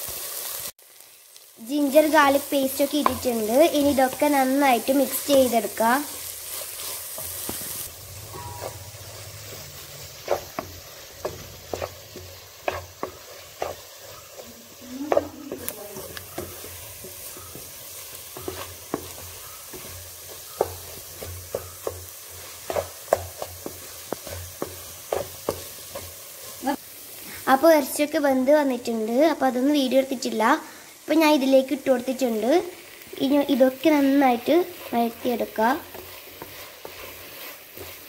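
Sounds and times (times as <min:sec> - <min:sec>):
food sizzling in oil: 0:00.0 - 0:38.0
wooden spatula scraping a pan: 0:02.2 - 0:26.8, 0:33.6 - 0:38.0.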